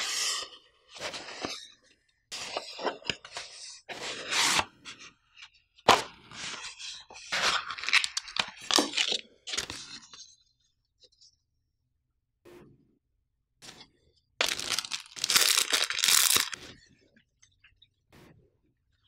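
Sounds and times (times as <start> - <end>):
cardboard packaging rustling: 14.4 - 16.6.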